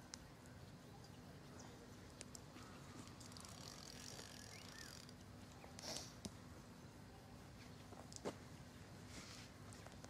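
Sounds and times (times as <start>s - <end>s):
reel scrape: 3.1s - 5.2s
fishing reel whirring: 3.2s - 5.2s
reel mechanism clicks: 3.2s - 5.2s.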